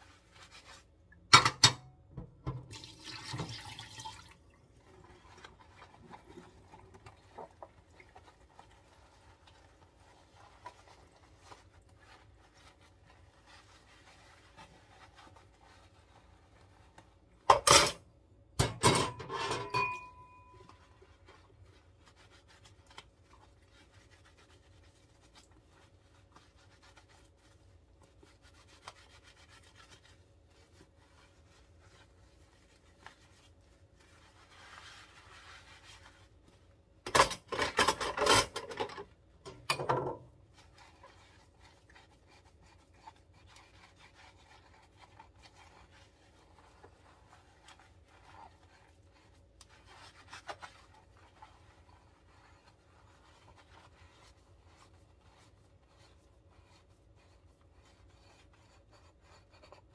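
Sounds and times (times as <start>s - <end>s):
sponge scrubbing: 0.0s - 1.1s, 2.5s - 17.5s, 20.3s - 59.9s
knocks and clatter in sink: 1.3s - 3.8s, 18.6s - 20.1s, 37.0s - 40.4s.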